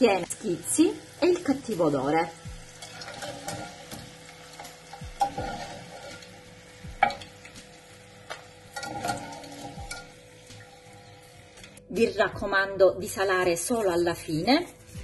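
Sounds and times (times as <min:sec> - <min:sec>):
hot oil sizzling in a frying pan: 0:00.0 - 0:11.9
skimmer clinking against pan: 0:08.3 - 0:10.8.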